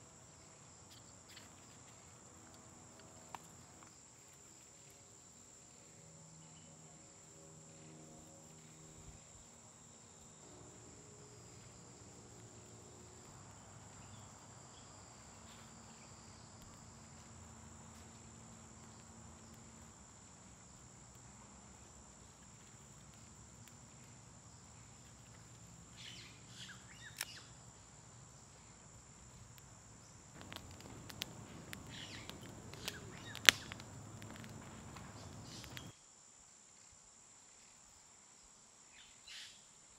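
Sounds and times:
insects chirring: 0.0s - 39.9s
campfire crackling: 0.1s - 35.9s
fire popping: 10.6s - 25.9s, 28.9s - 35.9s.

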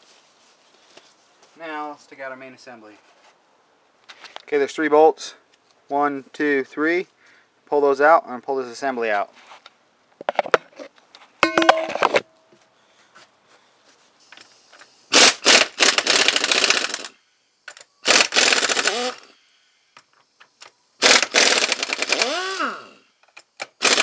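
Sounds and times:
air impact wrench rattling: 15.1s - 19.4s, 21.0s - 23.0s, 23.6s - 24.0s.

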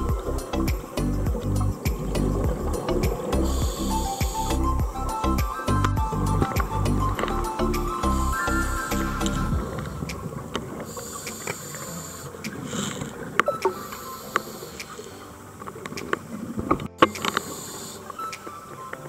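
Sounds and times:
sharp underwater clicks and crackles: 0.0s - 4.8s, 5.4s - 19.0s
scuba regulator breathing: 3.3s - 5.1s, 10.8s - 15.4s, 17.3s - 18.2s.

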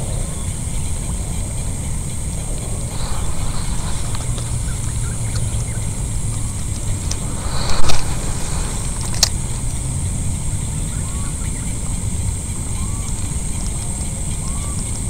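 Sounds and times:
high-pitched insect drone: 0.0s - 15.0s
wind rumbling on microphone: 0.0s - 15.0s
short loud rush: 2.9s - 10.6s.

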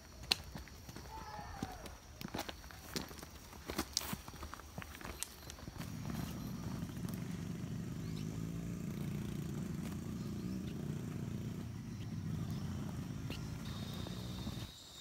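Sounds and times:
vehicle engine running: 5.7s - 14.7s.

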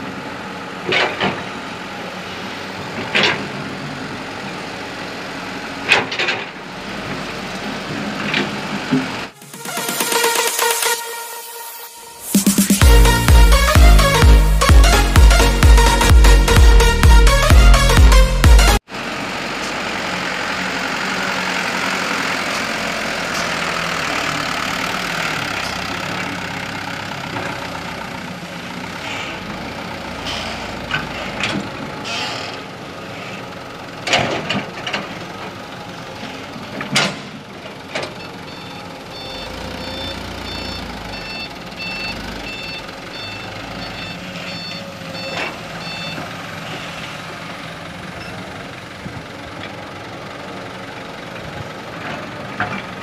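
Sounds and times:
diesel truck engine running: 0.0s - 53.0s
reversing alarm beeping: 38.1s - 47.0s.

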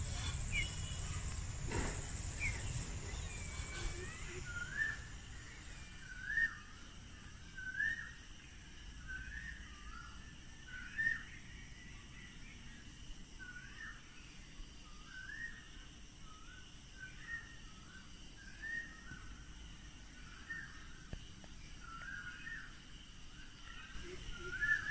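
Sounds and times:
bird whistling call: 0.0s - 6.7s, 23.8s - 24.9s
faint steady hiss: 0.0s - 24.9s.

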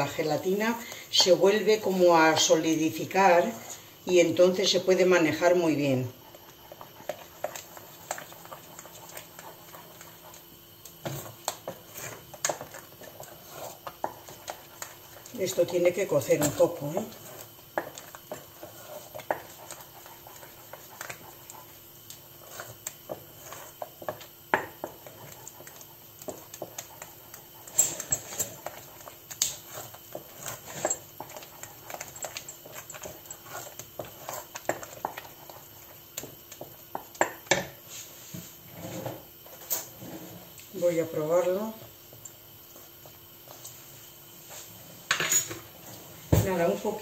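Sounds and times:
spoon knocking and scraping pot: 0.0s - 2.5s, 6.4s - 40.0s
wooden spoon stirring thick sauce: 0.0s - 44.8s.

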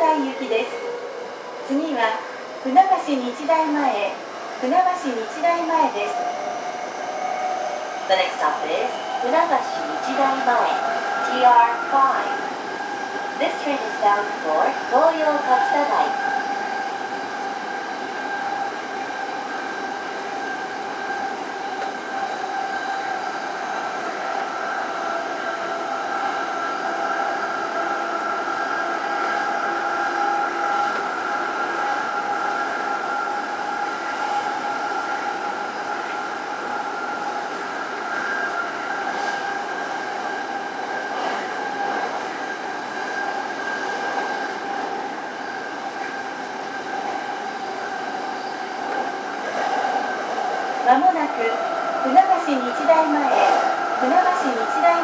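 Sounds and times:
wheels rumbling on rail: 0.0s - 55.0s.

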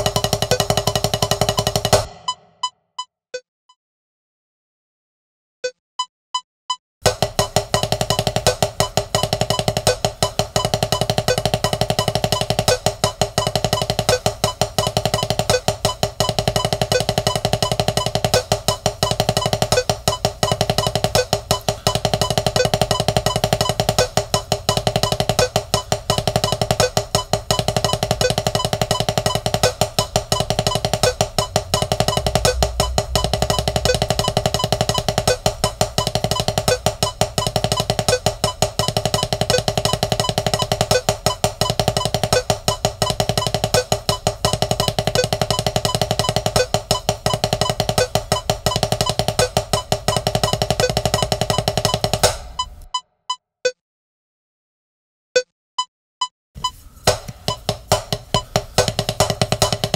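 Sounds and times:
backing track with steady beat: 0.0s - 2.7s, 7.0s - 52.9s, 56.6s - 59.9s
drumsticks on rubber practice pad: 56.6s - 59.9s.

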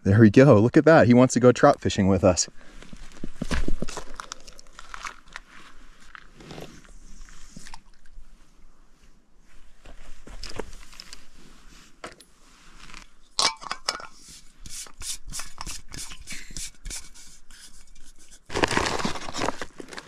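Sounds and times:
soft rubbing of gear: 5.3s - 13.2s.

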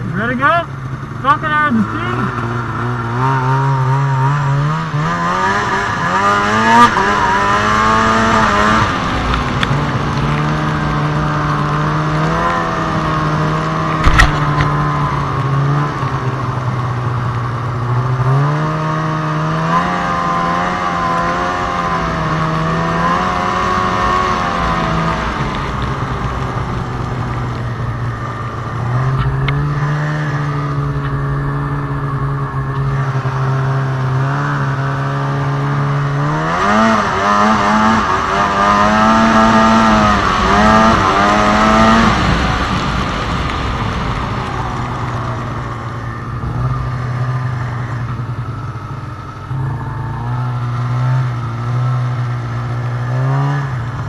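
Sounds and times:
snowmobile engine revving: 0.0s - 54.0s.

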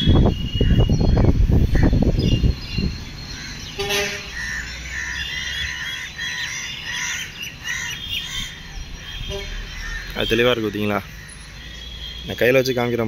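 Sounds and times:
wind rumbling on microphone: 0.0s - 5.9s
small birds chirping: 0.0s - 13.0s.

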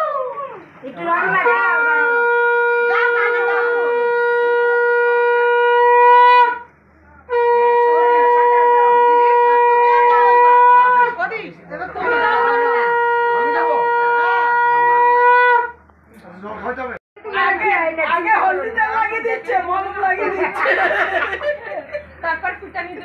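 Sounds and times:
faint voices chattering: 0.2s - 23.0s
conch shell blasts: 1.4s - 6.7s, 7.3s - 11.1s, 12.2s - 15.8s.

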